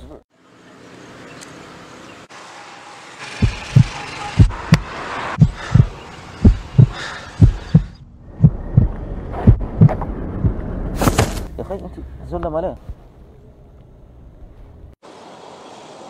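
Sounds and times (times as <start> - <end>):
heartbeat thumps: 3.4 - 10.6.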